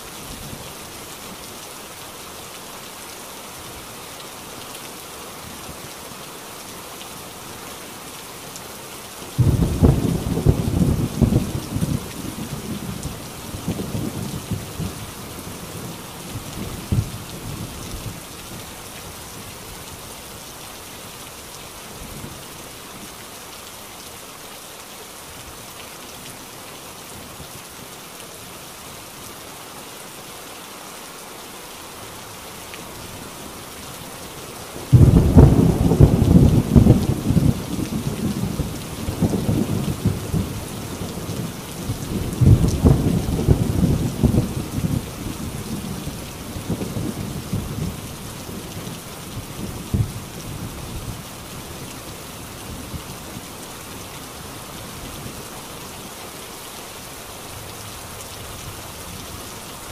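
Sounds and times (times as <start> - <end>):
rain on a tin roof: 0.0 - 59.9
thunder rumbling: 9.4 - 15.0, 34.9 - 40.6, 41.2 - 48.0
loud thunderclap: 34.9 - 38.6, 42.4 - 45.0.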